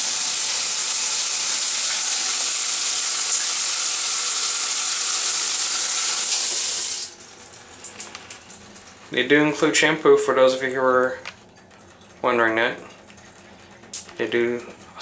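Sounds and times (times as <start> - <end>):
shower water spraying on wall: 0.0 - 15.0.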